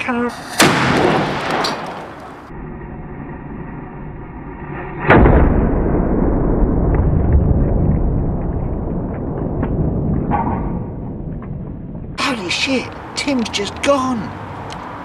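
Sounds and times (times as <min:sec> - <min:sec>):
deep explosion boom: 0:00.4 - 0:12.3
low muffled rumble: 0:02.5 - 0:12.2.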